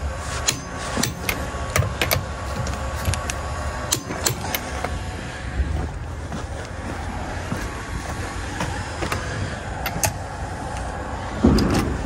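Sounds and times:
low background rumble: 0.0 - 12.0
hand tools clicking and clanking: 0.3 - 5.0, 8.6 - 12.0.

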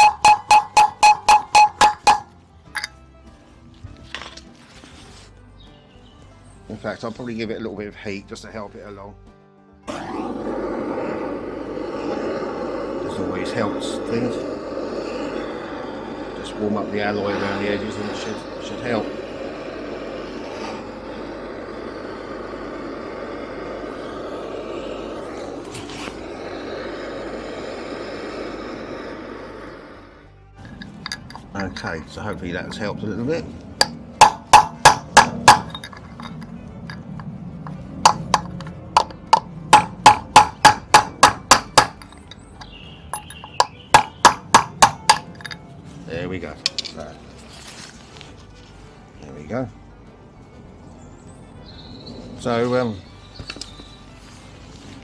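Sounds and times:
hammer striking metal: 0.0 - 3.0, 33.8 - 37.1, 37.7 - 45.6
blowtorch flame rushing: 9.8 - 46.7.

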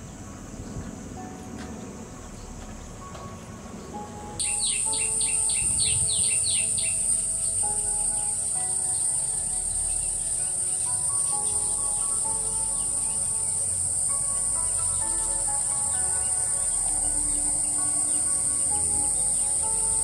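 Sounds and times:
high-pitched insect drone: 0.0 - 20.0
descending bird chirps: 3.8 - 20.0.

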